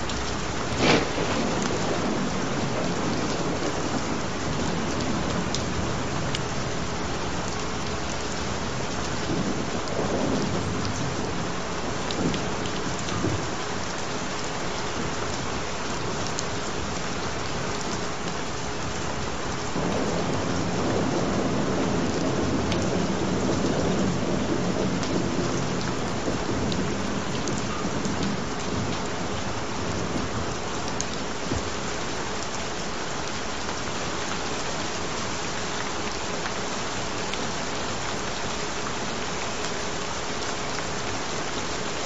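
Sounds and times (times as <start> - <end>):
steady rain falling: 0.0 - 42.0
low thunder rumbling: 0.1 - 14.0, 19.7 - 31.8.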